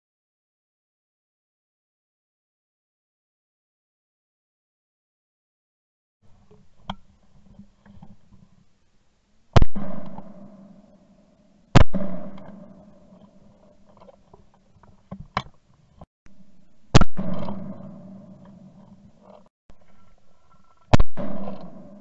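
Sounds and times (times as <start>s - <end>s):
shotgun shots with echo: 9.6s - 10.8s, 11.8s - 13.2s, 16.9s - 18.4s, 20.9s - 22.0s.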